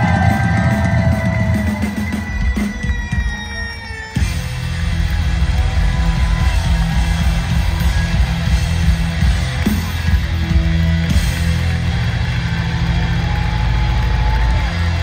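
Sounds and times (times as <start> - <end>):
pounding drum kit: 0.0 - 15.0
distorted bass guitar riff: 4.2 - 15.0.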